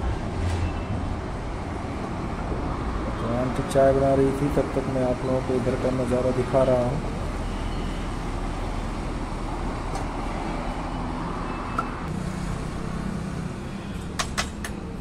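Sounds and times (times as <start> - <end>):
heavy vehicle engine hum: 0.0 - 15.0
road traffic passing: 0.0 - 15.0.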